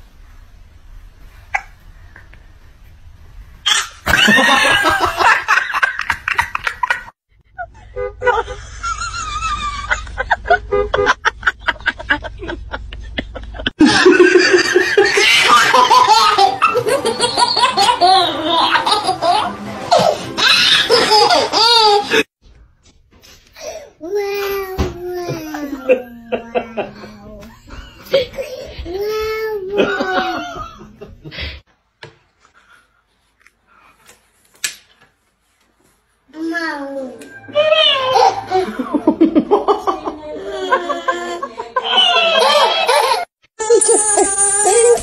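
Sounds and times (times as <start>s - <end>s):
baby laughing loudly: 3.7s - 7.1s, 13.8s - 22.3s, 37.6s - 45.0s
woman laughing: 38.0s - 43.2s.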